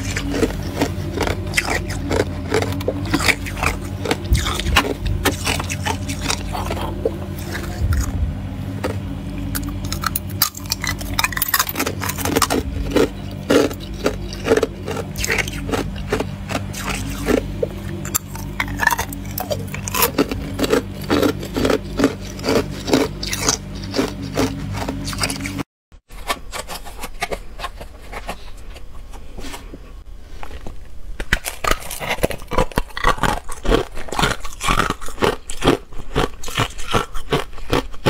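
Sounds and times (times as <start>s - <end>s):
ice cubes crunching and cracking: 0.0s - 8.1s, 9.6s - 25.6s, 30.4s - 38.0s
steady low hum: 0.0s - 38.0s.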